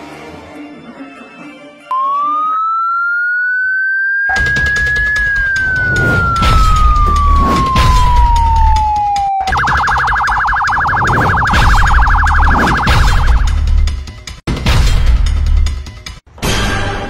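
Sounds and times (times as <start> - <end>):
police siren wailing and yelping: 1.9 - 13.6
bass-heavy music beat: 10.8 - 14.1.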